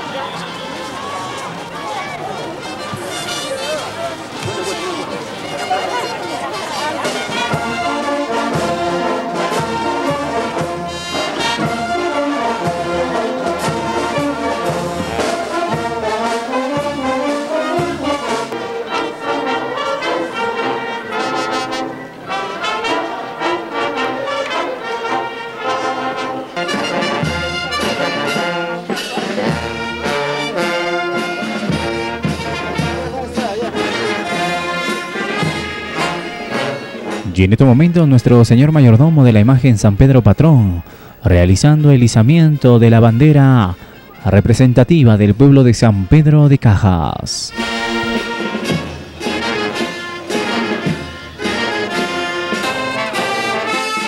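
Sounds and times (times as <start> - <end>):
brass band playing: 0.0 - 54.0.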